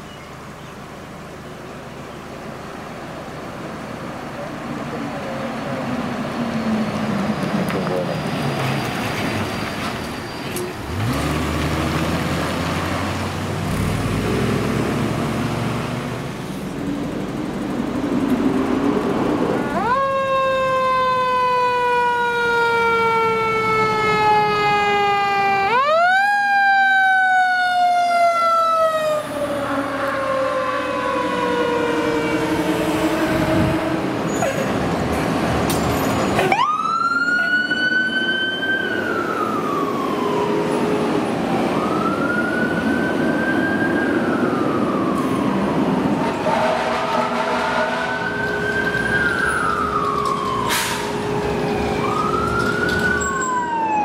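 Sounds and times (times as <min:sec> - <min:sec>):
fire truck diesel engines: 0:00.0 - 0:54.0
engine revving: 0:10.8 - 0:19.7.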